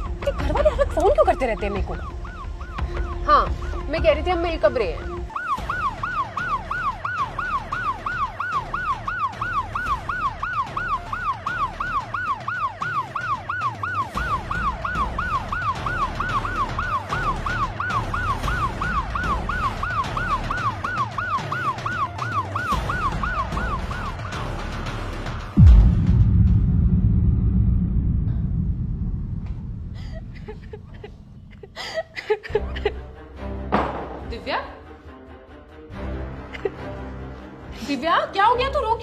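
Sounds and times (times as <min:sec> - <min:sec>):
ambulance siren yelping: 0:00.0 - 0:25.5.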